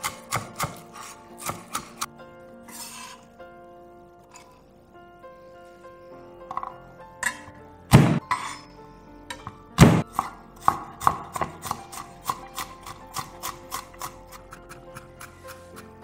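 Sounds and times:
knife chopping on wooden board: 0.0s - 0.8s, 1.4s - 2.1s, 9.8s - 15.9s
soft background music: 0.0s - 16.0s.

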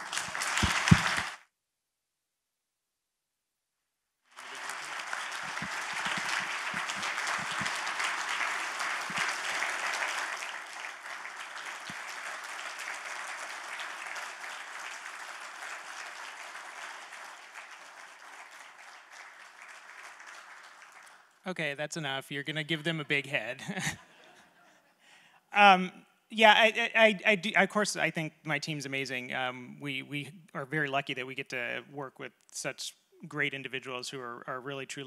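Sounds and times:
audience applauding: 0.0s - 1.4s, 4.3s - 21.6s.

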